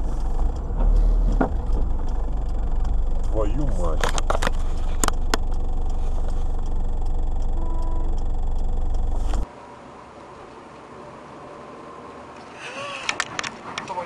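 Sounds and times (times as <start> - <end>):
car engine idling: 0.0 - 9.5
sharp clicks: 0.0 - 9.5.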